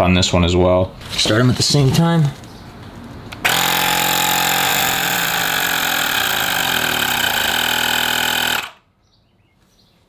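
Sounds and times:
tire inflator compressor running: 0:03.4 - 0:08.8.

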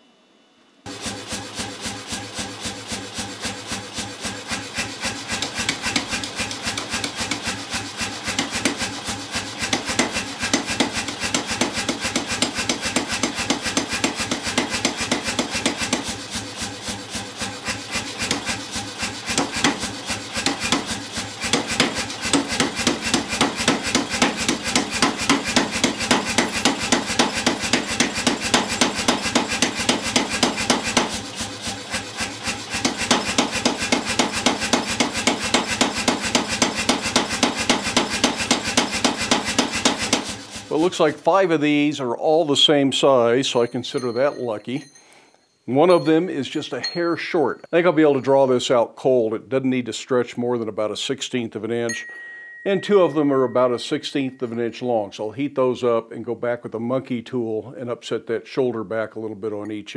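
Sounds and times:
rapid hammer blows on metal: 0:00.9 - 0:41.8.

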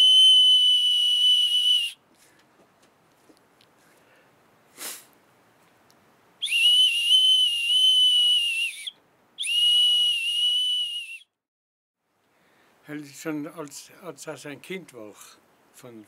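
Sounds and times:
breathy puff: 0:03.8 - 0:05.2.

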